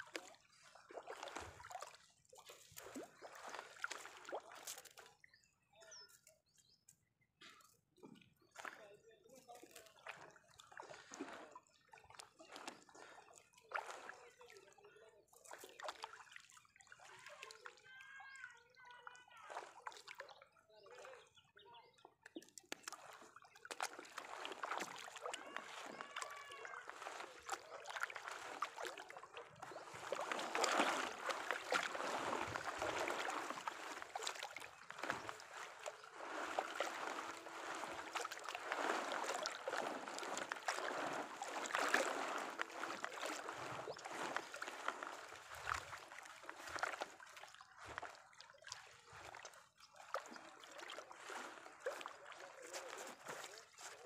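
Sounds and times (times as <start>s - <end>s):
water splashing and dripping: 0.0s - 5.3s, 6.8s - 14.7s, 15.3s - 21.3s, 22.0s - 54.0s
wet net being hauled: 0.9s - 5.1s, 9.7s - 11.5s, 12.1s - 14.2s, 22.8s - 54.0s.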